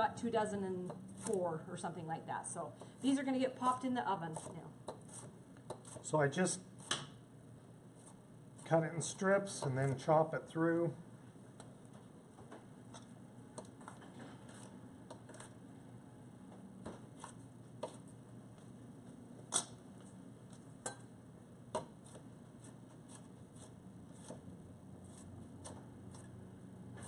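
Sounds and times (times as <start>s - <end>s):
knife chopping on cutting board: 4.3s - 6.1s.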